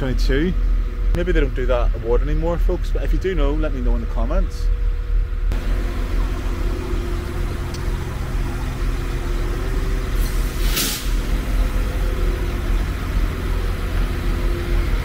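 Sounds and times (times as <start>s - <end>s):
diesel train engine idling: 0.0s - 15.0s
air hiss: 9.4s - 12.2s.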